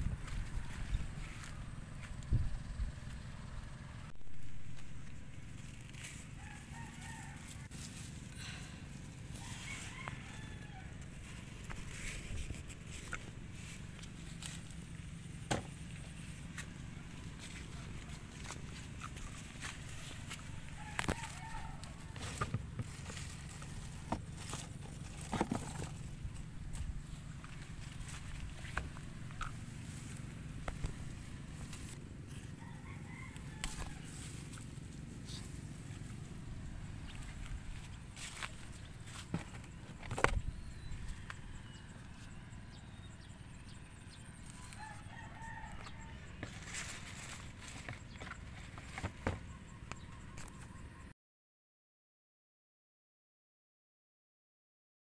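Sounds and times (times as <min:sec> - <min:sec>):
wind rumble on microphone: 0:00.0 - 0:03.1
leaves rustling: 0:04.2 - 0:41.2, 0:44.4 - 0:49.0
rooster crowing: 0:06.2 - 0:07.8, 0:09.3 - 0:11.2, 0:19.6 - 0:22.4, 0:32.3 - 0:34.6, 0:40.8 - 0:46.8
distant bird call: 0:36.0 - 0:51.1.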